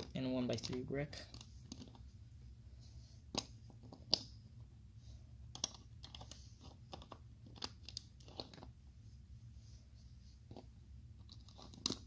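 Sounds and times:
plastic bricks clicking: 11.3s - 12.0s.

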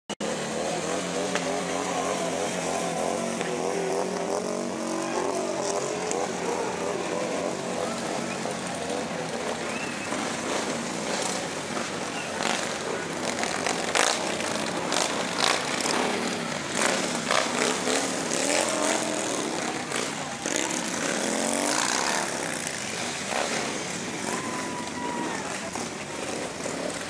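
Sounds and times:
motorcycle engines running: 0.2s - 27.0s
stadium crowd noise: 0.2s - 27.0s
people shouting: 1.4s - 3.3s, 24.1s - 25.9s.

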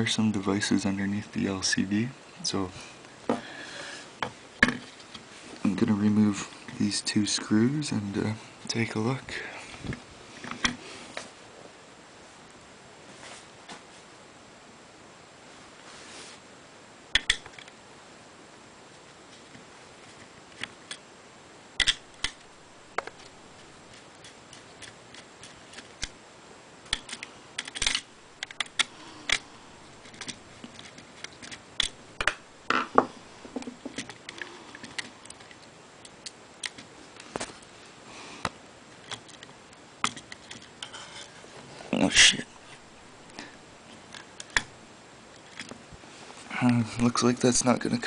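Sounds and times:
screwdriver clicks and taps: 17.2s - 17.6s.

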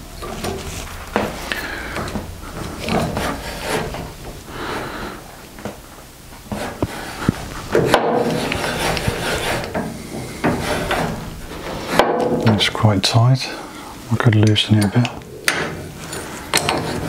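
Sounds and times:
handwheel rubbing and scraping: 0.0s - 4.4s, 6.5s - 12.0s.

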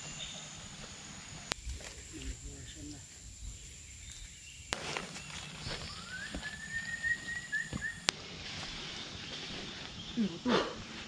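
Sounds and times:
footsteps on trail: 0.0s - 10.2s
high insect tone: 0.0s - 11.0s
whistle-like call: 5.9s - 8.1s.

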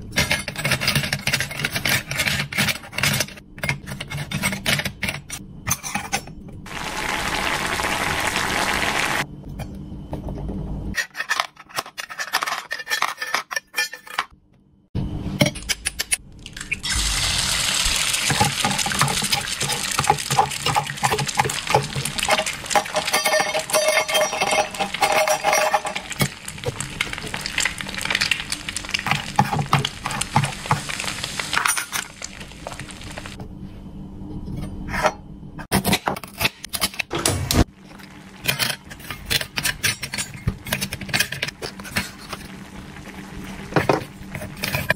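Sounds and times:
metal toy pots clinking: 18.2s - 30.8s.

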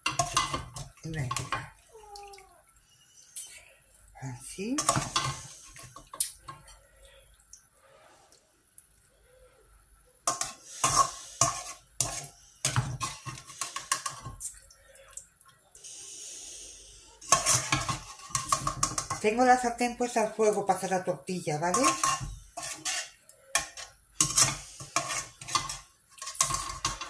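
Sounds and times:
frying oil hiss: 4.6s - 6.4s, 10.3s - 14.6s, 15.8s - 19.0s, 24.2s - 27.0s
metal skimmer scraping frying pan: 10.3s - 14.4s, 17.2s - 19.7s, 21.6s - 27.0s.

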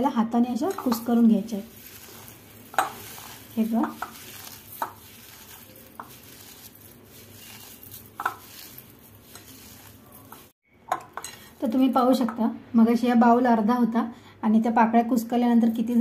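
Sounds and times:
petals and sugar crackling rustle: 0.5s - 12.2s.

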